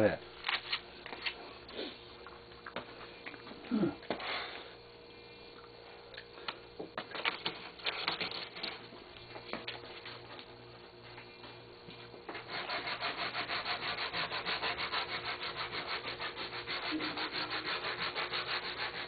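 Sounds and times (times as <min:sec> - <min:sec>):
faint steady hum: 0:00.0 - 0:19.0
hand-sanding wood: 0:12.3 - 0:19.0.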